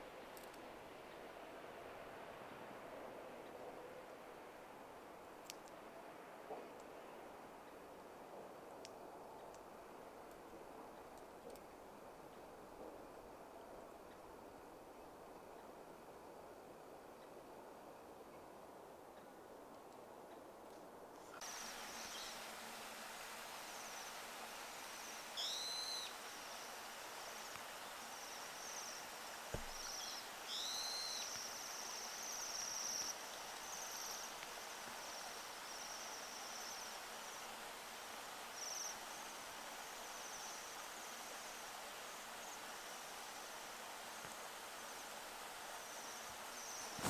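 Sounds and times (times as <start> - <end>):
bird call notes: 25.0 - 26.8, 29.6 - 33.2.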